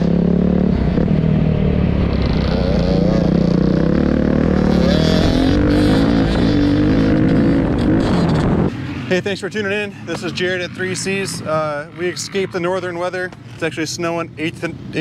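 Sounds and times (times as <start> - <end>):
dirt bike engine revving: 0.0 - 8.8.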